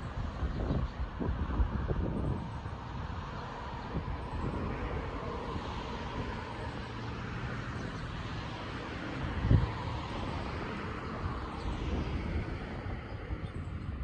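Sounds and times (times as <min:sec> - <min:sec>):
distant engine drone: 0:00.0 - 0:14.0
wind rumbling on microphone: 0:00.0 - 0:14.0.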